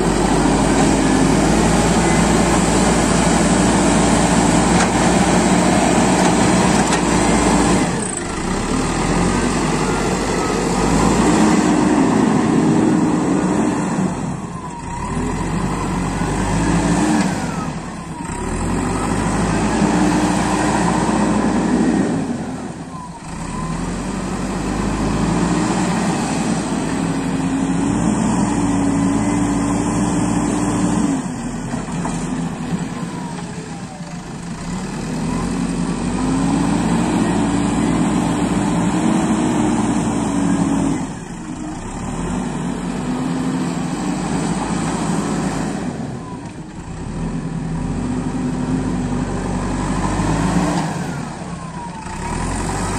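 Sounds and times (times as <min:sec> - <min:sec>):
diesel engine running under load: 0:00.0 - 0:52.9.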